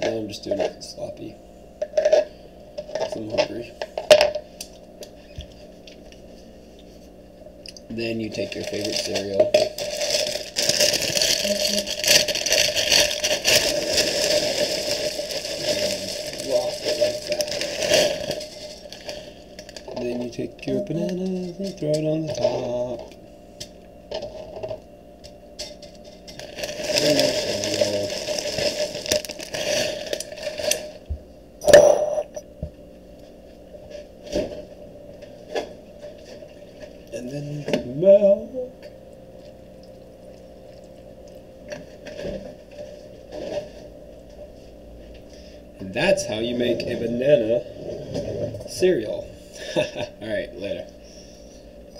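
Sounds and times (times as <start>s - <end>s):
faint hum: 0.0s - 51.9s
cereal pouring into bowl: 8.6s - 18.8s, 26.5s - 30.6s
box and bag rustling: 8.6s - 19.2s, 26.4s - 30.8s.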